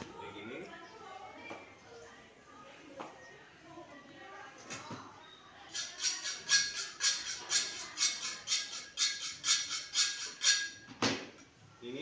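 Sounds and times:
knife scraping potato: 0:05.7 - 0:10.7.

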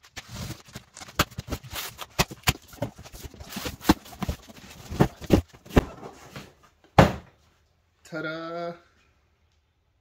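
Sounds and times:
cardboard knocks and rustles: 0:01.1 - 0:07.4.

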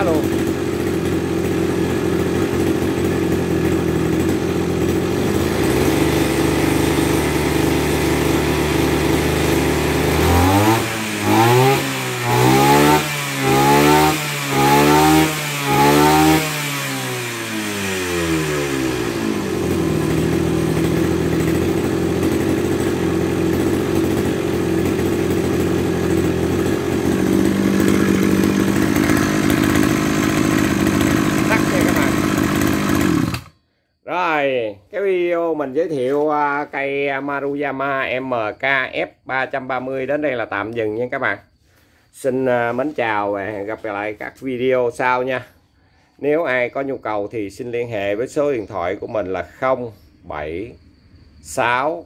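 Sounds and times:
brush cutter engine revving: 0:00.0 - 0:33.6.

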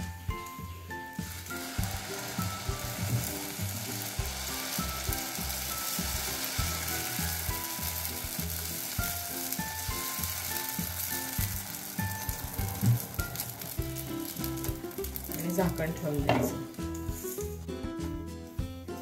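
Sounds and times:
batter sizzling on a griddle: 0:00.0 - 0:17.7
background music: 0:00.0 - 0:19.0.

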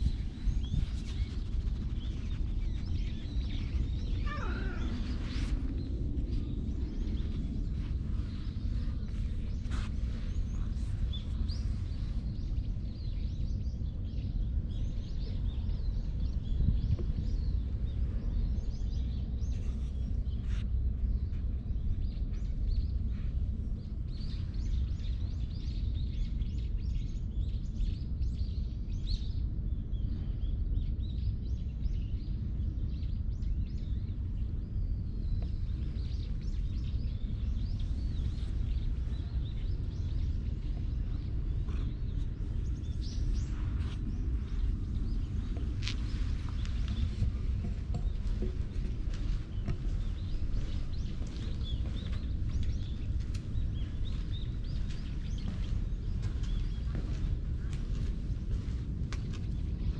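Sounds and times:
low outdoor rumble: 0:00.0 - 0:59.9.

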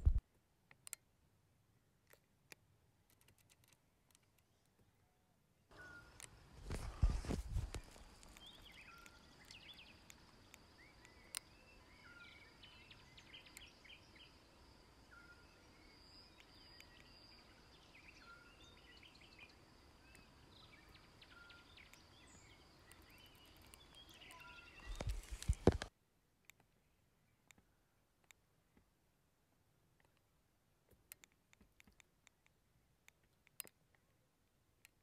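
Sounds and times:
faint short chirps: 0:05.7 - 0:07.6.

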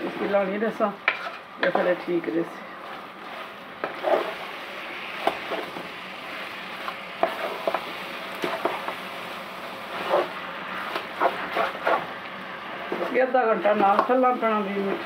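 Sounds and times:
food sizzling: 0:00.0 - 0:15.0
spatula scraping a pot: 0:01.0 - 0:01.5, 0:03.2 - 0:04.4, 0:09.9 - 0:12.2.

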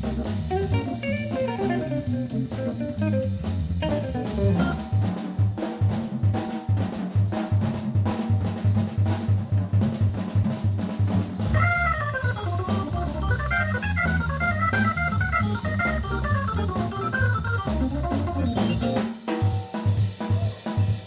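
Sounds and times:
walking bass line: 0:00.0 - 0:05.2, 0:11.4 - 0:19.0
organ melody: 0:00.0 - 0:05.6, 0:11.4 - 0:19.3
drum kit keeping time: 0:00.0 - 0:21.0.

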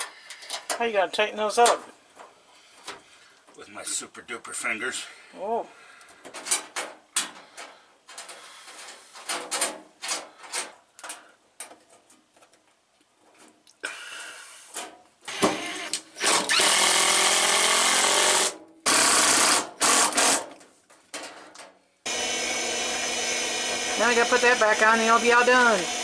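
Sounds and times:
cordless drill driving screws: 0:15.3 - 0:20.4, 0:22.1 - 0:26.0.

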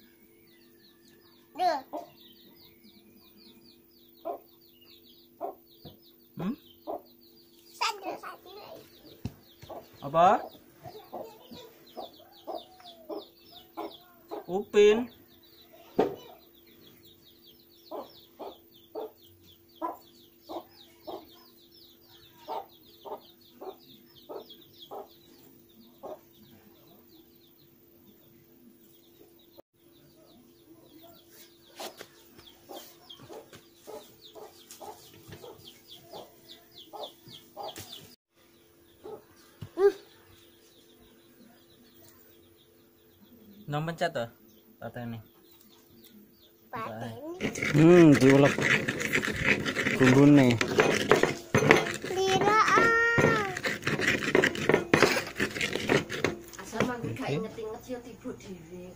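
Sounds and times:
chicken clucking: 0:08.7 - 0:14.6, 0:22.4 - 0:25.3, 0:30.2 - 0:38.2
fast high chirping: 0:46.8 - 0:57.0
knocks: 0:47.4 - 0:57.0.

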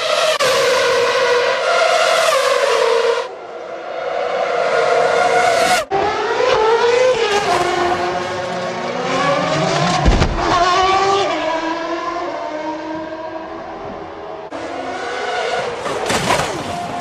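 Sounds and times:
racing car engine at high revs: 0:00.0 - 0:17.0
car striking barrier thump: 0:09.9 - 0:11.0.

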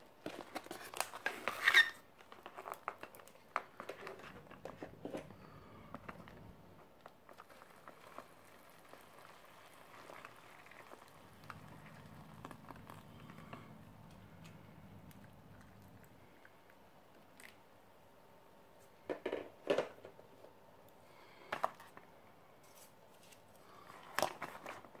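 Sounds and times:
foil pouch crinkling: 0:00.2 - 0:05.6, 0:07.3 - 0:14.6
hot water trickling into pouch: 0:07.0 - 0:16.6.

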